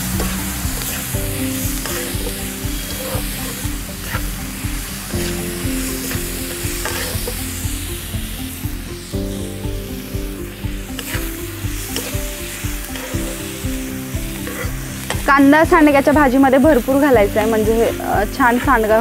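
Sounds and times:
onions sizzling in hot oil: 0.0s - 19.0s
metal spatula scraping a pan: 6.8s - 7.4s, 11.9s - 12.2s, 14.4s - 15.3s.

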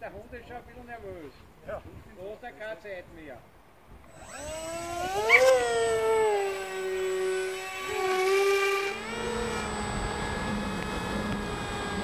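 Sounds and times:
wind: 0.0s - 12.0s
electric motor and propeller whine: 4.0s - 12.0s.

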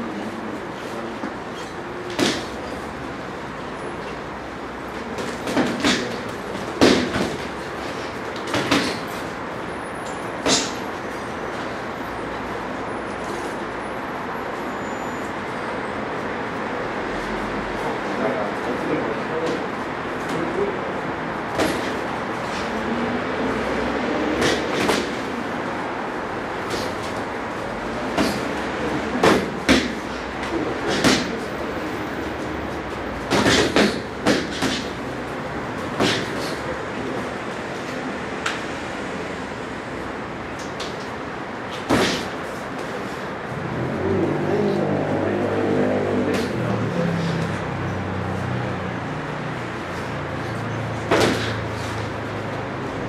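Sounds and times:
boxing gloves smacking: 2.1s - 2.6s, 5.2s - 7.6s, 8.3s - 9.2s, 10.4s - 10.8s, 21.6s - 22.1s, 24.3s - 25.3s, 28.1s - 31.4s, 33.2s - 35.0s, 35.8s - 36.6s, 41.7s - 43.0s, 51.0s - 51.7s.

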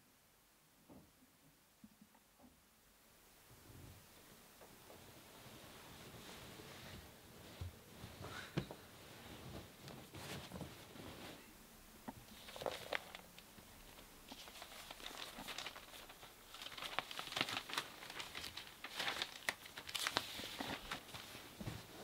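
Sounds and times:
paper crinkling and rustling: 12.2s - 22.0s.

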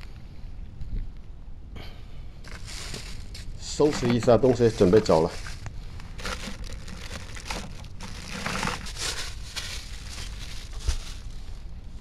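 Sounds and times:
plastic containers scraping: 2.5s - 11.6s
plastic bags crinkling: 2.5s - 12.0s.

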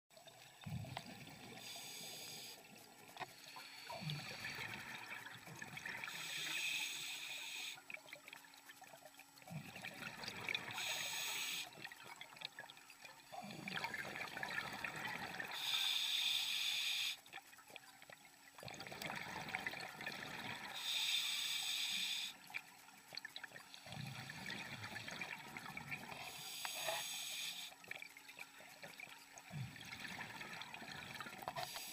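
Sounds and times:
diver inhaling through regulator: 1.6s - 2.6s, 6.0s - 7.8s, 10.7s - 11.7s, 15.5s - 17.2s, 20.6s - 22.4s, 26.0s - 27.8s, 31.4s - 31.9s
bubbling exhaled air: 13.4s - 15.9s.

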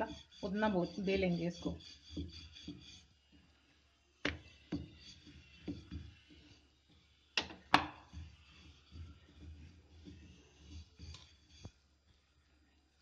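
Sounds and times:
rolling pin knocking on glass: 7.4s - 8.5s.

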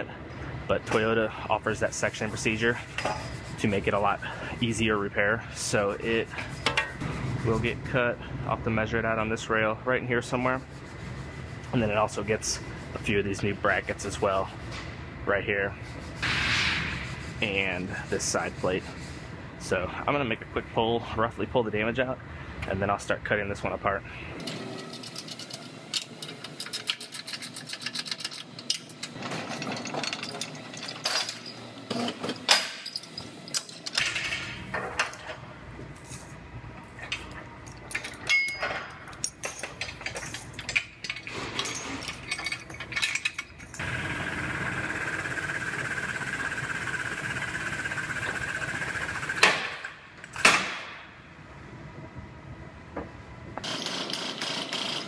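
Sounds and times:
steel chains clanking: 24.8s - 34.1s, 37.7s - 43.8s.

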